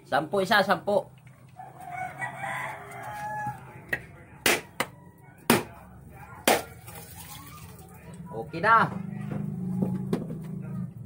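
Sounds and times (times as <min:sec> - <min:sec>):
rooster crowing: 0:01.6 - 0:03.8
knife striking coconut shell: 0:03.9 - 0:04.9, 0:05.5 - 0:05.7, 0:06.4 - 0:06.7.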